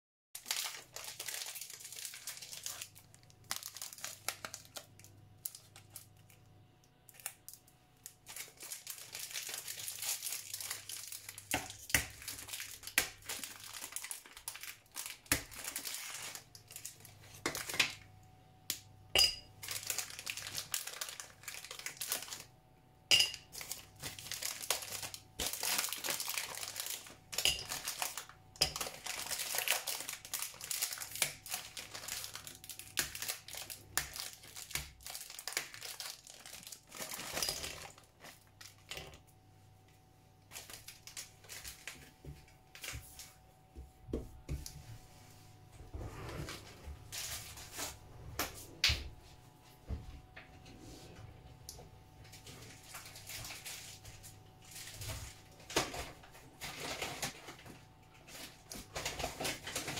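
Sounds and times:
wrapper crinkling and tearing: 0:00.4 - 0:06.5, 0:07.1 - 0:18.1, 0:19.6 - 0:22.5, 0:23.4 - 0:39.2, 0:40.4 - 0:43.3, 0:52.4 - 0:59.9.

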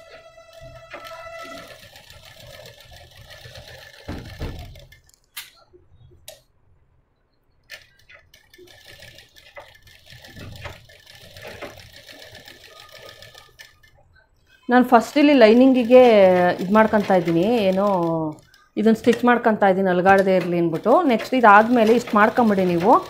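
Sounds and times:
sewing machine stitching: 0:00.0 - 0:05.1, 0:07.7 - 0:14.0, 0:15.0 - 0:19.3, 0:20.0 - 0:23.0
sewing machine clicks: 0:00.8 - 0:05.6, 0:07.6 - 0:13.9, 0:20.1 - 0:23.0.

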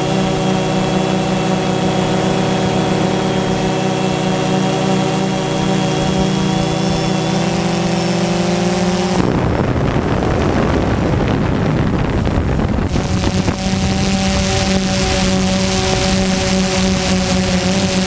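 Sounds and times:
drone propellers buzzing: 0:00.0 - 0:18.0
rough rushing noise: 0:00.0 - 0:18.0.

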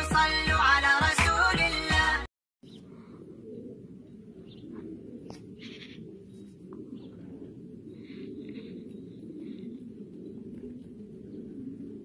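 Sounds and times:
pigeons cooing: 0:02.7 - 0:12.0.

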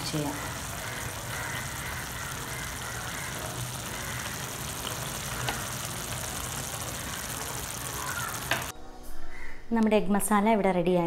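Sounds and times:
kitchen fan whirring: 0:00.0 - 0:08.7.

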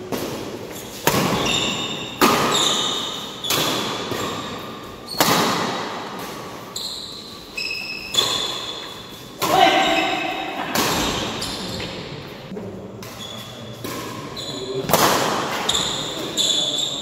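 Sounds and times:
racket hitting shuttlecock: 0:00.0 - 0:06.7, 0:08.0 - 0:12.0, 0:13.8 - 0:16.1.

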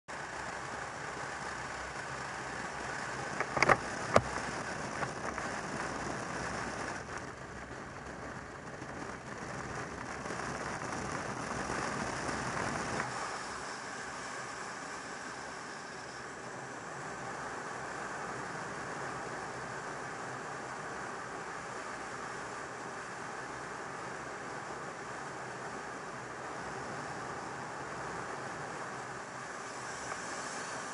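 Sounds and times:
motorcycle engine running: 0:00.1 - 0:30.9
wind rushing over microphone: 0:02.2 - 0:14.6.

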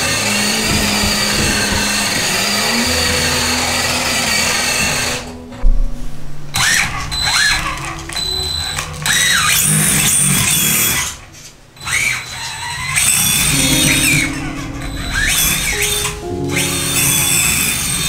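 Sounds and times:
background music with bass: 0:13.5 - 0:18.0.

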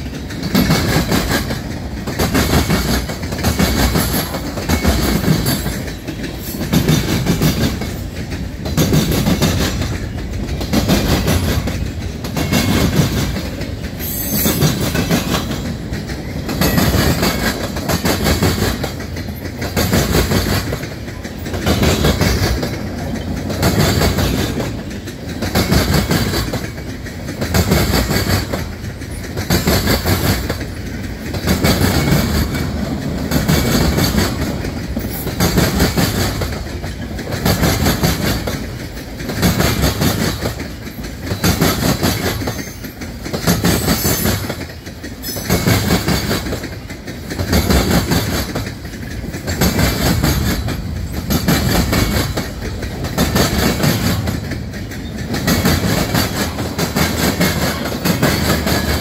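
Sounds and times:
train wheels clicking over rail joints: 0:00.0 - 0:59.0.

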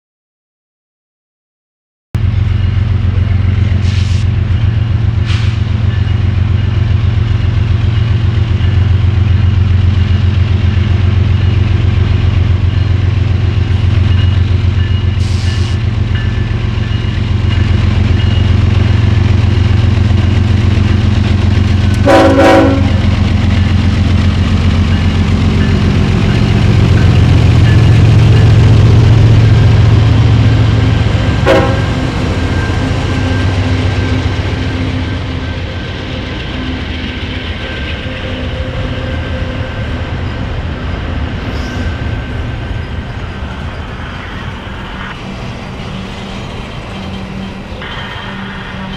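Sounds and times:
diesel locomotive engine: 0:02.2 - 0:48.9
short horn toot: 0:22.0 - 0:23.0, 0:31.5 - 0:32.0.

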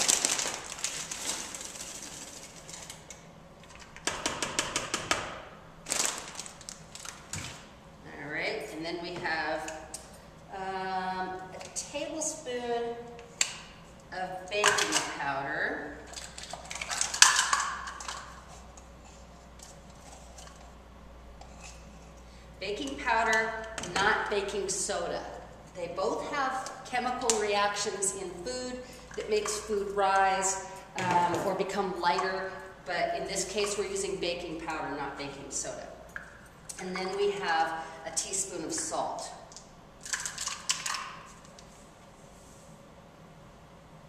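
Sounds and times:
paper bag rustling and crinkling: 0:00.0 - 0:03.0.

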